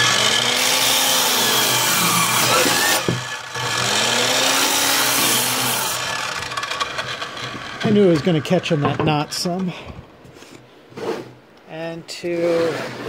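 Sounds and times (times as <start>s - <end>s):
saw cutting wooden board: 0.0s - 9.6s.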